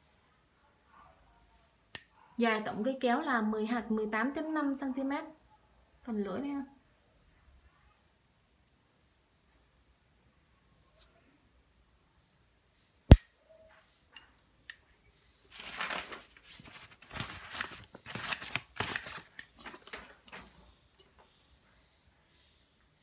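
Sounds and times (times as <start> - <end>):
scissors snipping paper: 17.0 - 19.6.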